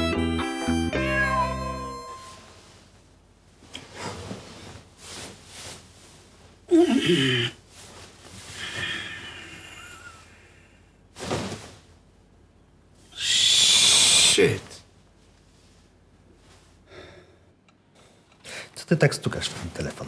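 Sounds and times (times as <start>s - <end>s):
harmonica tune: 0.0s - 2.5s
man sighing: 6.7s - 7.6s, 8.6s - 10.9s
man breathing heavily: 8.5s - 11.0s, 16.8s - 18.8s.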